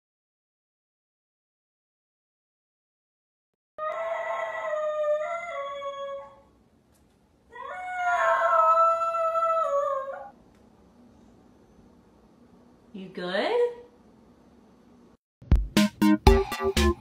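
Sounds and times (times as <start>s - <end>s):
puppy howling: 3.8s - 6.5s, 7.5s - 10.4s.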